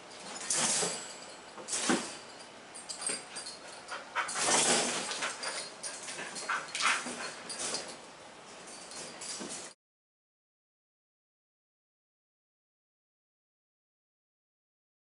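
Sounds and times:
dogs scuffling: 0:00.1 - 0:09.8.

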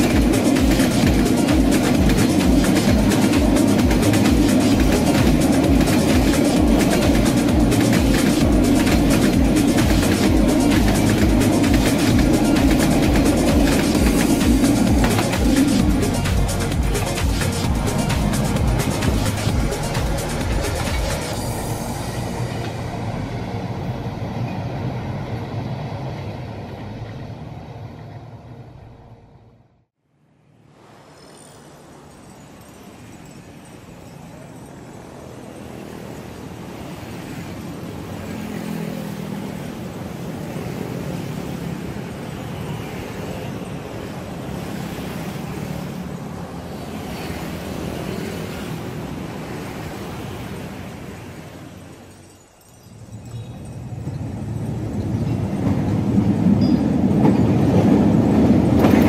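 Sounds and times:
train rumbling: 0:00.0 - 0:29.6, 0:30.8 - 0:59.0.

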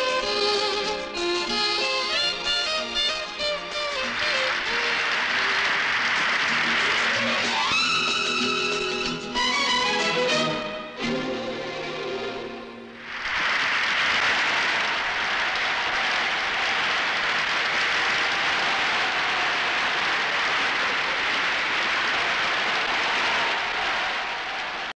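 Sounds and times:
music: 0:00.0 - 0:13.0
large crowd applauding: 0:00.2 - 0:10.6, 0:13.0 - 0:24.9.

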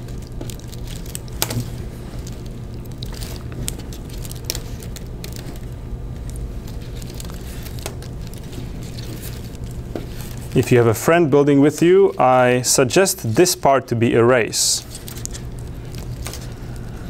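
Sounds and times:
plastic wrap clicks and rustles: 0:00.0 - 0:10.8, 0:14.8 - 0:17.0
steady low hum: 0:00.0 - 0:17.0.

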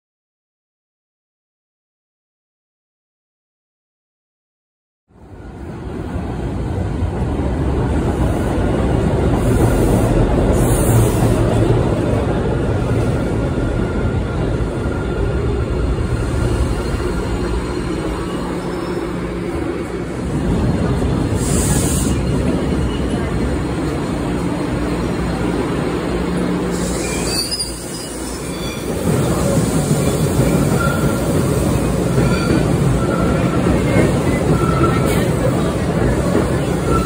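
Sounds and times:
rumble of wheels on rails: 0:05.3 - 0:37.0
faint wheel squeal: 0:26.7 - 0:29.5.

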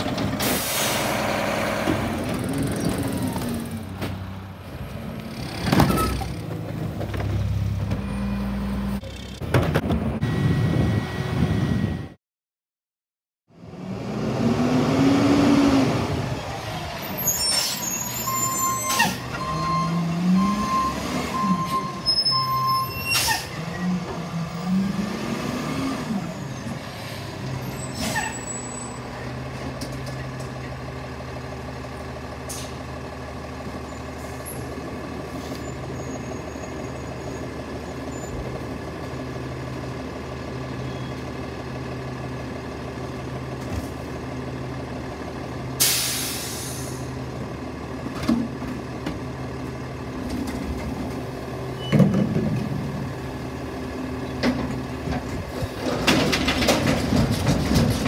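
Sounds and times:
truck diesel engine revving: 0:13.7 - 0:17.0, 0:23.5 - 0:27.6
air brake hisses: 0:45.8 - 0:47.1.

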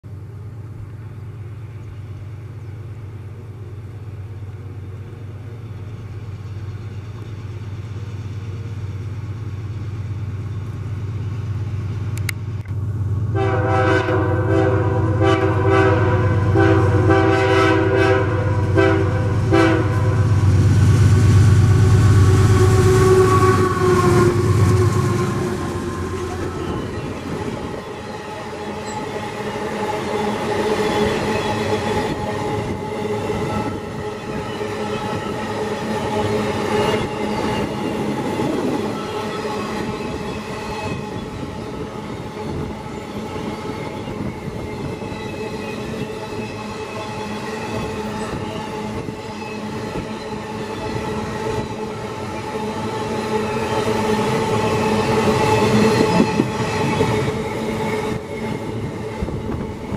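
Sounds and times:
multi-note air horn: 0:13.4 - 0:20.3
locomotives rumbling: 0:18.7 - 0:40.3.

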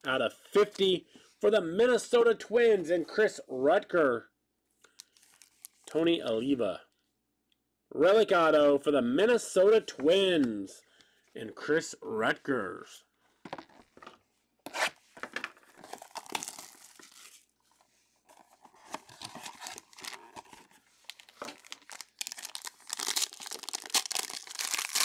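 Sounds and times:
plastic card sleeves rustling: 0:04.9 - 0:05.9, 0:14.7 - 0:25.0
foil wrapper crinkling and tearing: 0:05.0 - 0:05.8, 0:15.8 - 0:17.5, 0:18.7 - 0:25.0.

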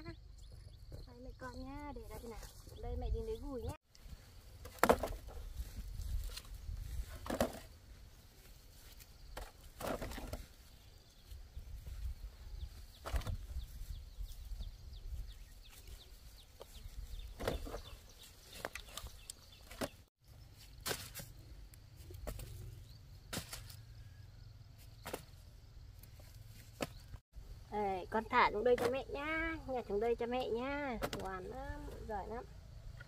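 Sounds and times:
low wind rumble on microphone: 0:05.4 - 0:07.2.

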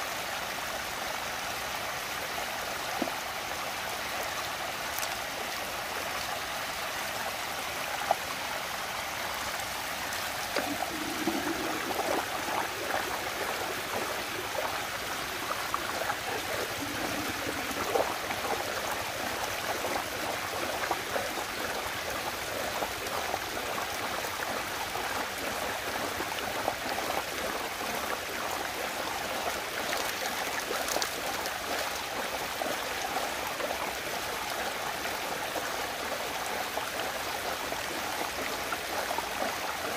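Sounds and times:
water rushing and gurgling: 0:00.0 - 0:39.9.

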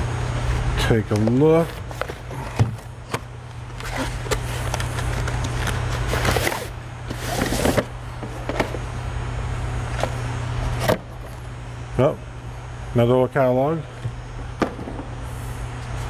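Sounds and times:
cardboard box scraping: 0:05.9 - 0:07.9.

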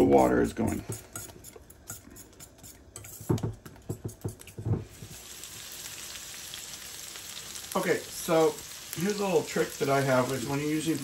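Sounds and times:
whisking in a metal bowl: 0:00.0 - 0:04.4
meat sizzling in a frying pan: 0:04.8 - 0:11.0.

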